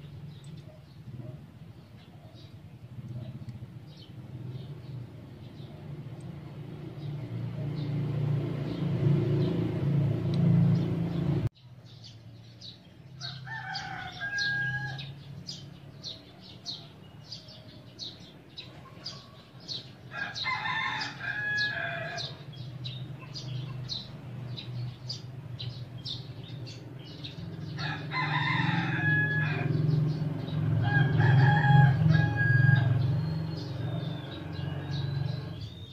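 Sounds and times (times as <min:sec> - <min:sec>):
roosters crowing: 0:13.1 - 0:18.0, 0:19.0 - 0:22.7, 0:27.2 - 0:35.9.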